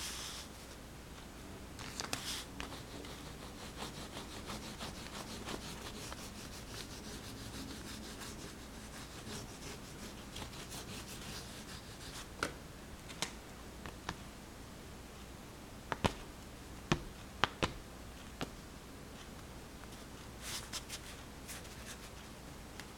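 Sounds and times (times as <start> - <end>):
crayon scraping paper: 2.0 - 12.3.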